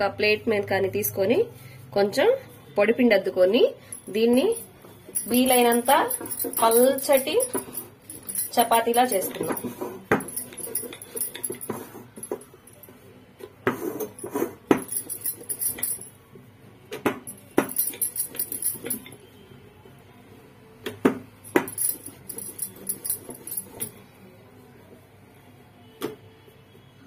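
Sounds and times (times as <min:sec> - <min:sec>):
metal bangles jingling: 0:03.9 - 0:12.9, 0:14.0 - 0:16.2, 0:17.3 - 0:19.2, 0:21.4 - 0:24.0.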